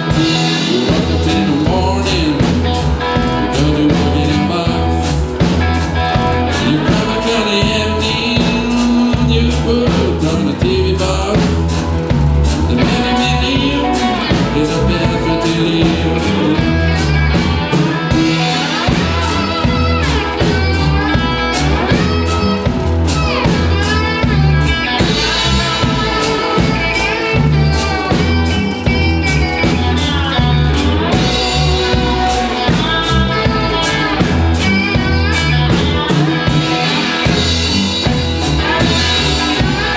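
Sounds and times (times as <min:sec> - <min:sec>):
blues band playing: 0:00.0 - 0:39.9
drum kit: 0:00.0 - 0:39.9
electric guitars: 0:00.0 - 0:39.9.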